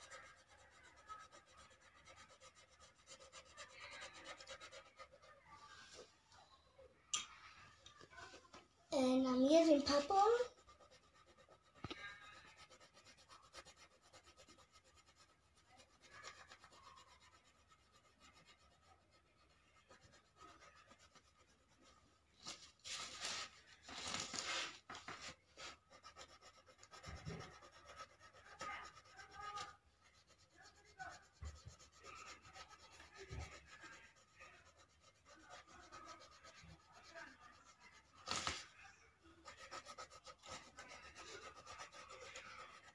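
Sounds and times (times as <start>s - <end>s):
pencil scratching on paper: 0.0s - 6.1s, 9.0s - 42.9s.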